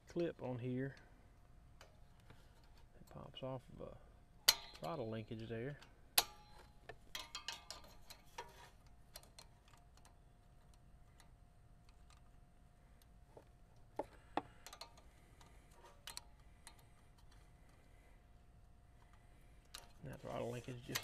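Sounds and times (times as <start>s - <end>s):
small metal clicks and taps: 4.4s - 12.4s, 13.0s - 17.9s, 18.6s - 20.1s.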